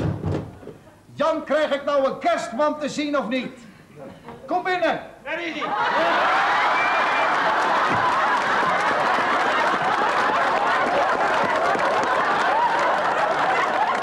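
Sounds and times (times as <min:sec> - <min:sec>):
audience laughing: 0:05.6 - 0:14.0
audience clapping: 0:06.1 - 0:14.0.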